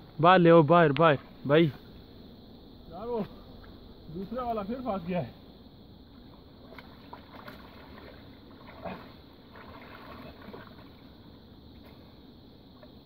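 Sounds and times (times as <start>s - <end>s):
water sloshing and splashing: 0.9s - 2.0s, 6.0s - 13.0s
river water rushing: 6.1s - 12.0s.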